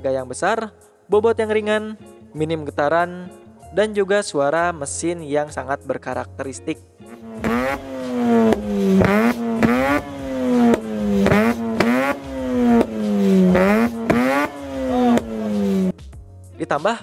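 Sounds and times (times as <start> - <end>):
rotary engine revving: 7.1 - 15.9.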